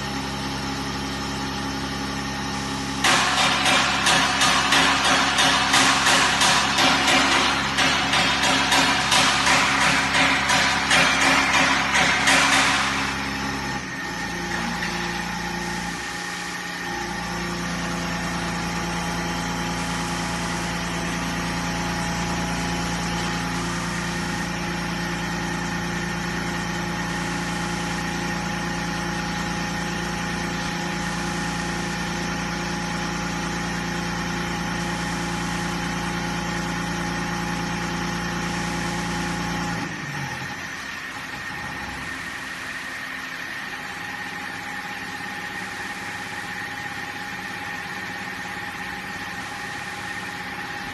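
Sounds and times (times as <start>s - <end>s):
pump mechanical hum: 0.0s - 50.9s.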